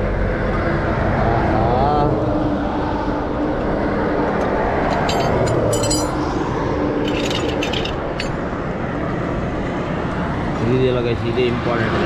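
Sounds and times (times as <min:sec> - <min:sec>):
steady background rush: 0:00.0 - 0:12.0
metal tools clinking: 0:04.9 - 0:06.3, 0:07.0 - 0:08.4.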